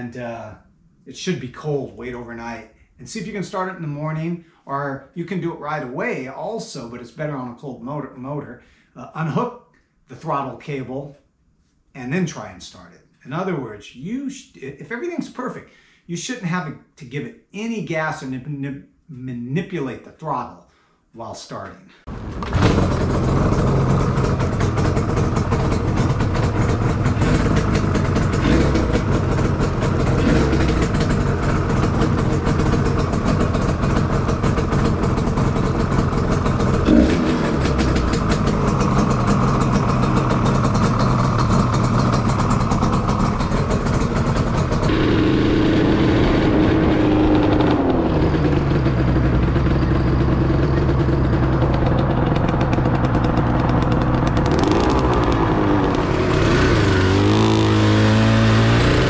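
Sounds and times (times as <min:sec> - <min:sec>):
two-stroke engine idling: 0:22.1 - 0:58.9.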